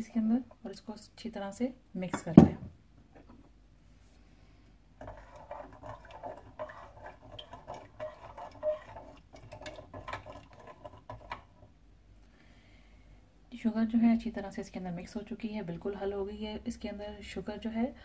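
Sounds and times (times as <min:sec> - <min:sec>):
spoon stirring in a ceramic mug: 0:05.0 - 0:11.6.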